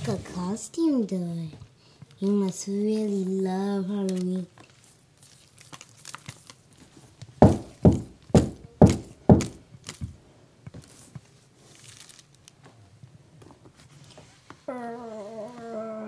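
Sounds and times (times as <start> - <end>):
knocking on door: 7.4 - 9.6.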